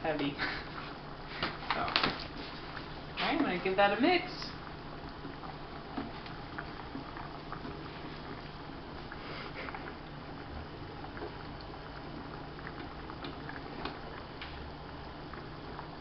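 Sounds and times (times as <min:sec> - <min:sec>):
water boiling and bubbling: 0:00.0 - 0:16.0
sauce popping in pan: 0:03.4 - 0:16.0.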